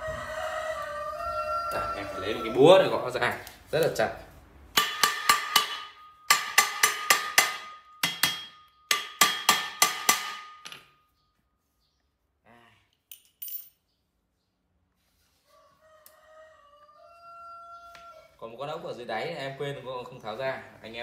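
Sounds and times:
hammer striking metal: 4.7s - 11.0s.

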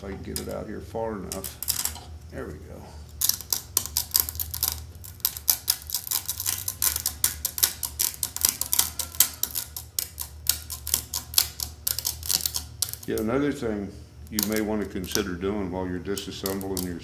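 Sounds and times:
low steady hum: 0.0s - 17.0s
pliers clicking on metal: 3.2s - 13.2s, 14.3s - 15.4s, 16.1s - 17.0s.

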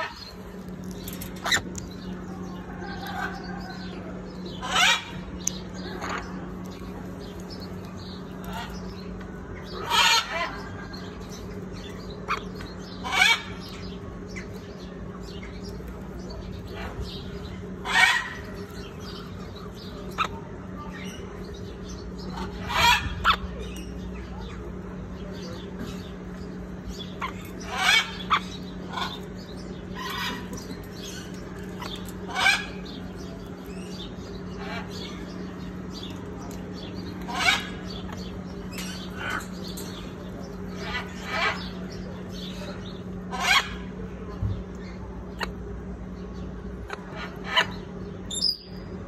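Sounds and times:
parrot squawking: 4.6s - 6.3s, 9.7s - 10.9s, 12.2s - 13.6s, 17.8s - 18.5s, 22.3s - 23.6s, 27.2s - 29.3s, 31.8s - 32.9s, 37.2s - 39.6s, 43.3s - 43.9s.

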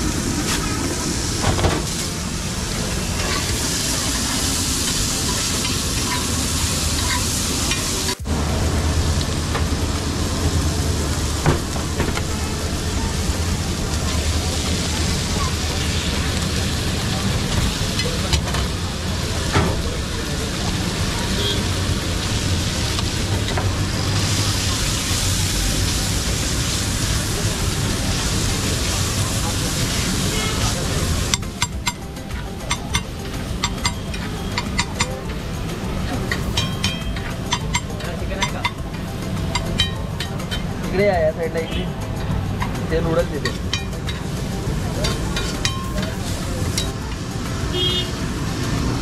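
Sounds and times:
food frying on a flat pan: 0.0s - 49.0s
hot oil sizzling: 0.0s - 49.0s
low hum: 7.7s - 17.4s.

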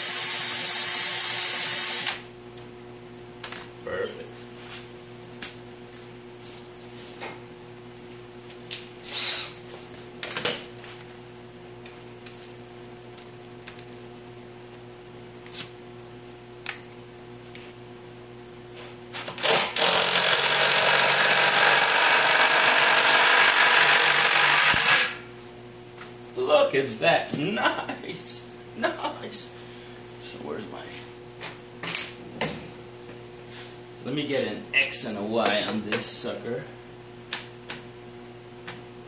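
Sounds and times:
cordless drill drilling into steel: 0.0s - 2.2s, 19.4s - 25.2s
steady hum: 0.0s - 39.0s.

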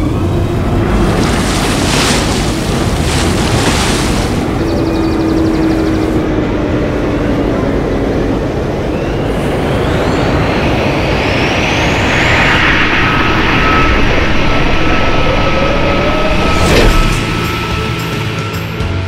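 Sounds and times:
powerboat hull and spray rush: 0.0s - 6.8s.

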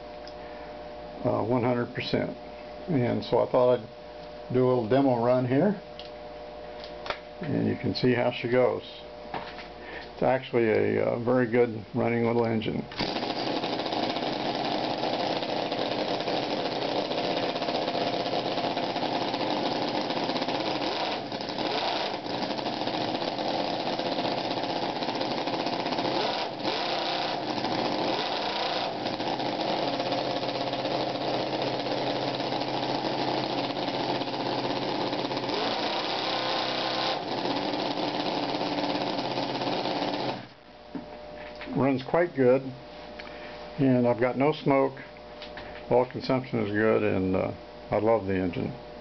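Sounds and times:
model engine running fast: 13.0s - 40.5s.

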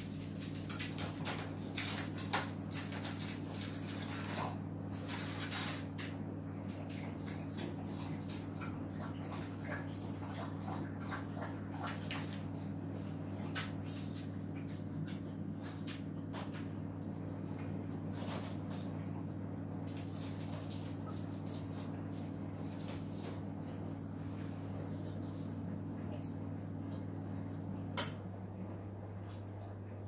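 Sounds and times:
washing machine motor hum: 0.0s - 30.0s
water sloshing in drum: 6.6s - 27.2s.

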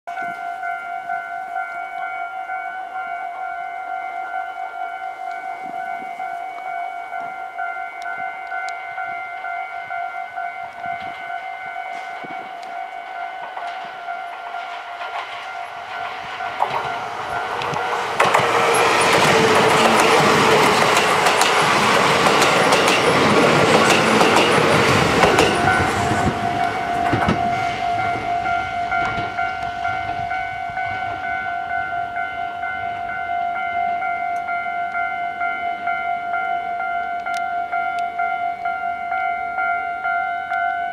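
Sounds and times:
level-crossing warning bell: 0.1s - 40.9s
train passing: 0.1s - 40.9s
wheels clacking over rail joints: 13.3s - 31.1s.

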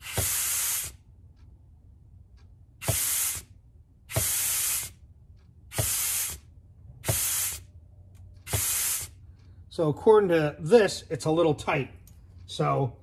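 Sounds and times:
compressed air hissing bursts: 0.0s - 1.0s, 2.8s - 3.5s, 4.1s - 5.0s, 5.7s - 7.7s, 8.4s - 9.2s.

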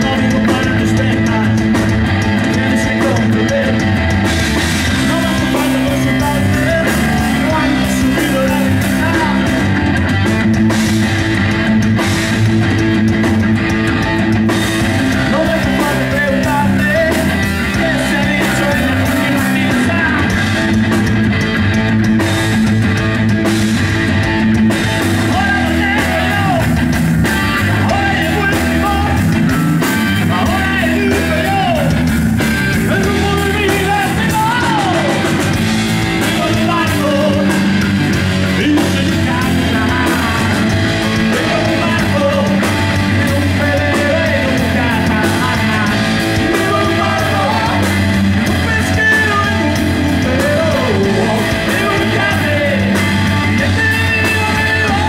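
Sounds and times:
person singing: 0.0s - 4.2s, 4.8s - 9.7s, 15.1s - 20.6s, 25.2s - 26.8s, 27.4s - 29.4s, 30.0s - 32.1s, 32.8s - 35.5s, 36.2s - 55.0s
drum kit: 0.0s - 55.0s
electric bass: 0.0s - 55.0s
electric guitar: 0.0s - 55.0s.

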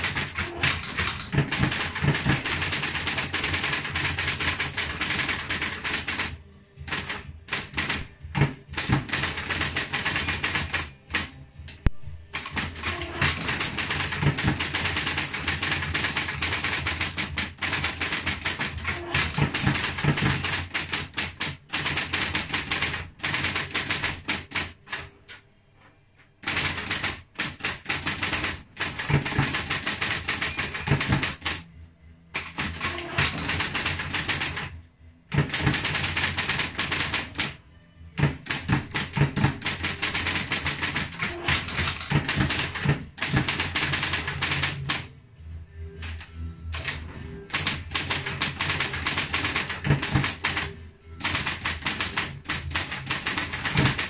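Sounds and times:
electric typewriter key strikes: 0.0s - 6.3s, 6.9s - 25.0s, 26.4s - 31.6s, 32.4s - 34.7s, 35.3s - 37.6s, 38.2s - 45.1s, 46.0s - 54.0s
typewriter motor hum: 0.0s - 6.3s, 12.3s - 24.8s, 46.8s - 54.0s.

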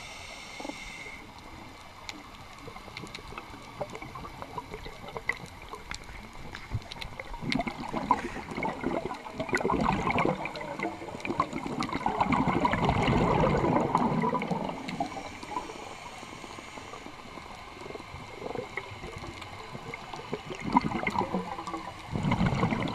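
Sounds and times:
faint clicks: 0.6s - 8.4s, 13.9s - 22.9s
regulator bubbling underwater: 2.6s - 22.9s.

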